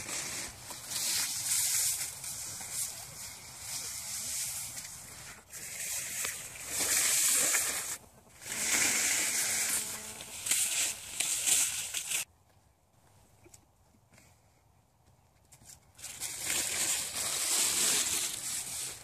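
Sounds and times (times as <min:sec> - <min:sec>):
fir branches swishing and rustling: 0:00.0 - 0:12.3.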